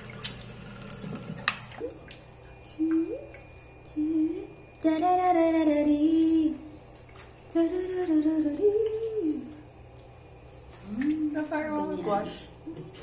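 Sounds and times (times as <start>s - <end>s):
woman humming: 2.6s - 4.6s, 10.8s - 11.7s.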